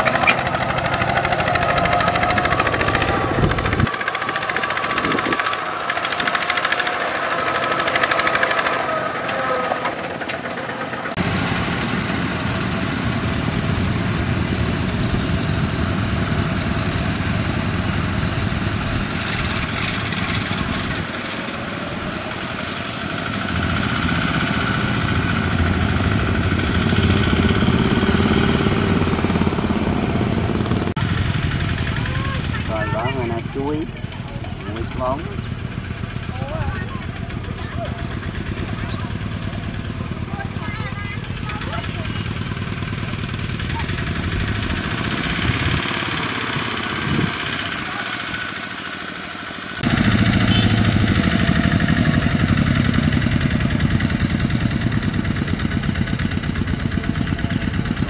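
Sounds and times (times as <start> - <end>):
diesel tractor engine chugging: 0.0 - 58.0.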